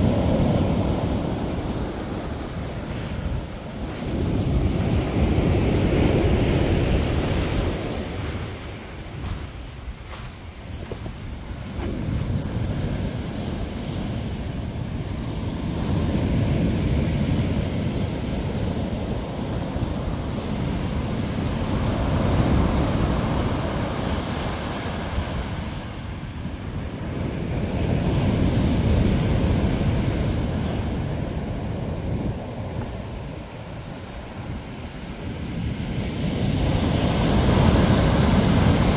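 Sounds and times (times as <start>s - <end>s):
ocean surf breaking on beach: 0.0s - 38.9s.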